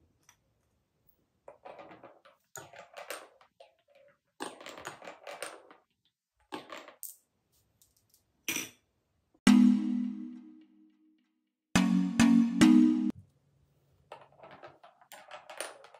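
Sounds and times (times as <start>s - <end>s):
marble rattling through wooden track: 14.1s - 15.9s.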